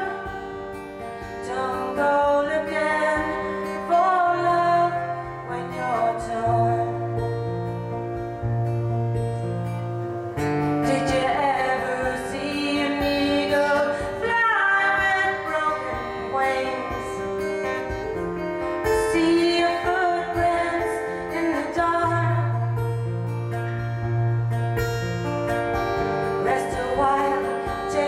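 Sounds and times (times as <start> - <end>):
woman singing: 0.0 - 7.6, 10.6 - 23.0, 26.2 - 28.0
acoustic guitar: 0.0 - 28.0.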